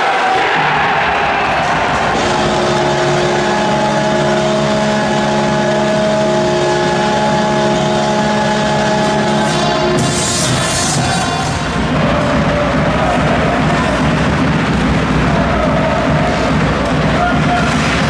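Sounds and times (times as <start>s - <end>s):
crowd noise: 0.0s - 18.0s
goal horn chord: 1.8s - 14.0s.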